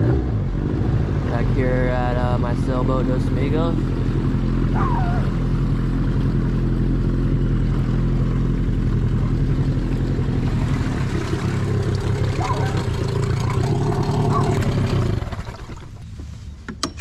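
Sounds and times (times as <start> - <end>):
outboard motor pulsing hum: 0.0 - 16.6.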